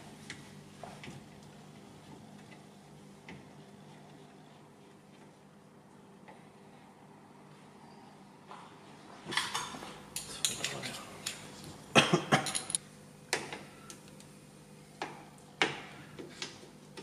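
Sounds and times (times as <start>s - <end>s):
steel parts clinking on engine block: 12.4s - 12.8s.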